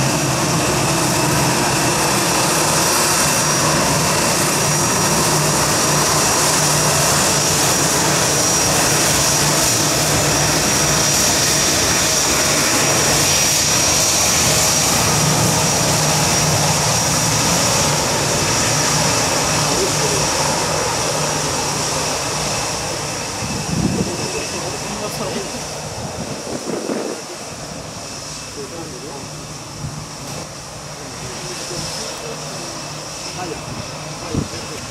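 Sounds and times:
jet engines whining: 0.0s - 34.9s.

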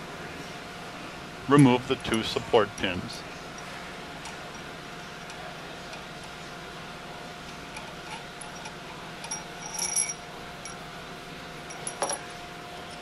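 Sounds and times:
low steady hum: 0.0s - 13.0s
metal pins clinking on workbench: 7.8s - 10.8s, 11.7s - 12.3s.

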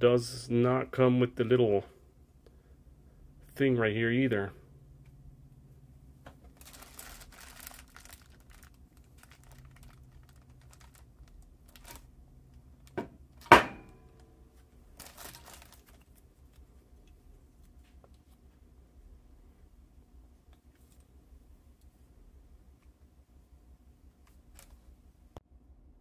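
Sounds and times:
sharp metallic knock: 13.5s - 14.1s.

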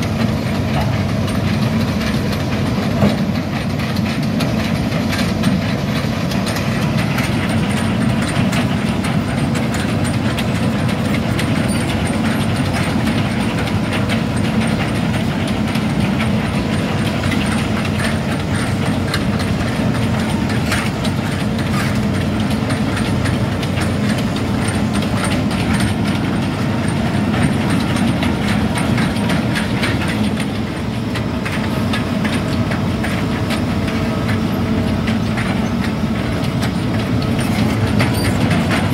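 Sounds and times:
diesel engine running: 0.0s - 38.9s
track cleats clattering: 0.1s - 38.9s.

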